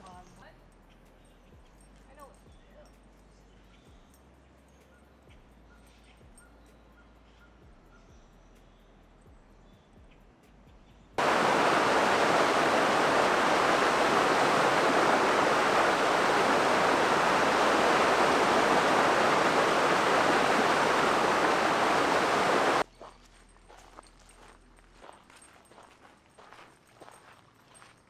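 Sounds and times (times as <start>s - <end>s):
rush of falling water: 11.2s - 22.8s.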